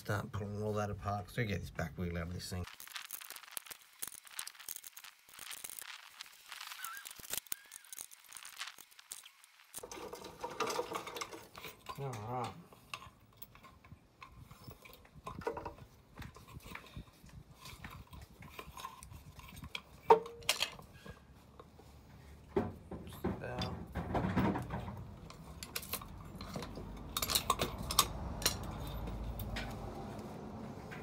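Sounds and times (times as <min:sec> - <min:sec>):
metal tools clinking and rattling: 0:09.8 - 0:21.2, 0:23.1 - 0:29.9.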